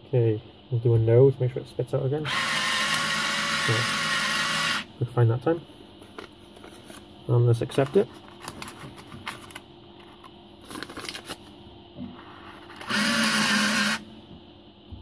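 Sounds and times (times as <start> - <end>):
paper rustling: 7.8 - 11.5
note acceptor motor running: 12.8 - 14.0.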